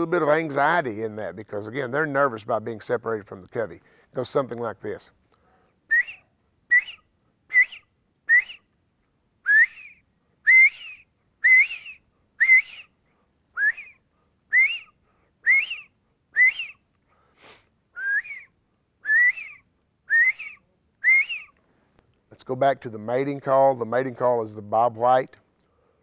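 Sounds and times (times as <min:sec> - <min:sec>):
man whistling bird call: 0:05.9 - 0:08.7, 0:09.4 - 0:16.8, 0:17.9 - 0:21.6.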